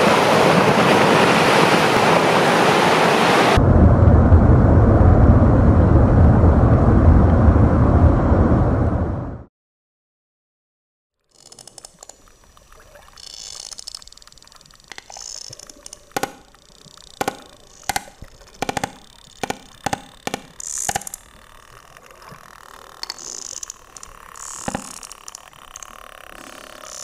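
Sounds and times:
water noise: 0.0s - 8.5s, 11.3s - 27.0s
whale clicks underwater: 11.4s - 27.0s.

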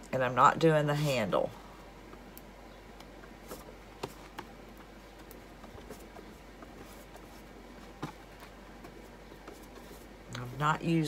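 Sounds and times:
paintbrush brushing on wood: 5.7s - 8.2s.

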